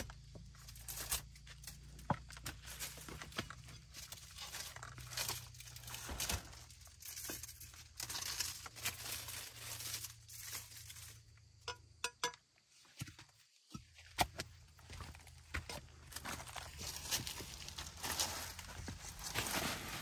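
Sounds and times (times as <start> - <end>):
rustling and crackling: 0.0 - 11.6, 16.0 - 20.0
sharp clicks and knocks: 11.7 - 12.4.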